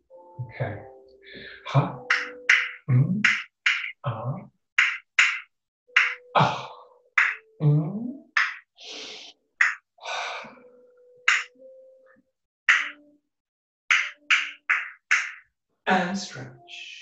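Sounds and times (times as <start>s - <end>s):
man voicing gliding ha: 1.6s - 4.5s, 6.3s - 8.3s.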